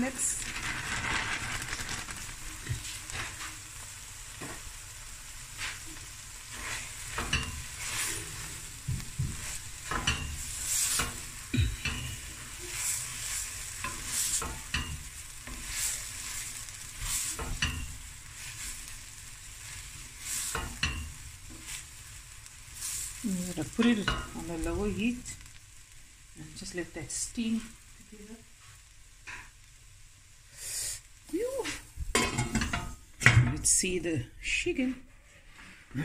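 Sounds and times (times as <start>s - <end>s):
food sizzling: 0.0s - 36.0s
wooden spoon scraping a pot: 5.6s - 22.0s.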